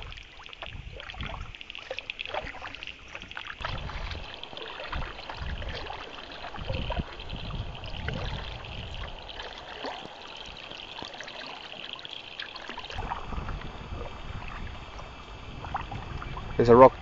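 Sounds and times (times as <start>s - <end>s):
water dripping off paddles: 0.0s - 17.0s
low rumbles: 3.6s - 11.0s, 12.8s - 17.0s.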